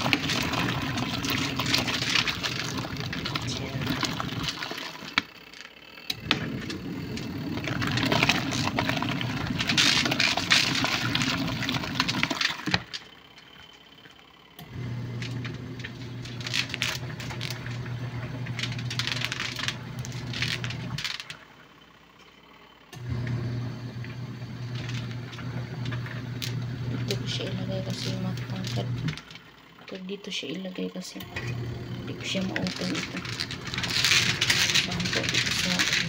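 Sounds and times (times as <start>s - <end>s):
water and clothes sloshing: 0.0s - 5.2s
washing machine motor humming: 0.0s - 36.0s.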